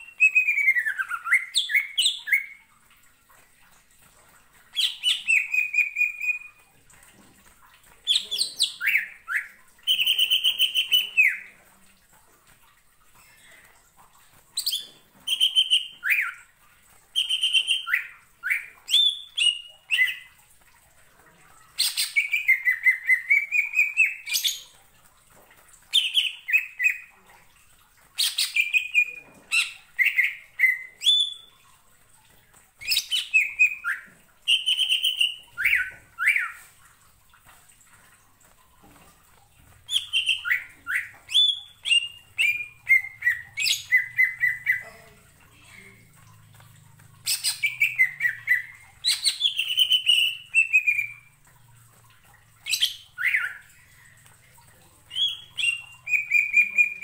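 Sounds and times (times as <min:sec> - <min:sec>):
bird singing whistled notes: 0:14.6 - 0:16.3.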